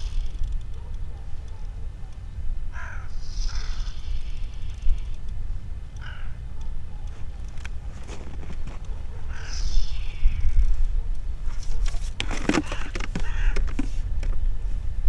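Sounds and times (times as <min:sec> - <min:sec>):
bird call: 0:02.8 - 0:05.2, 0:09.2 - 0:10.8.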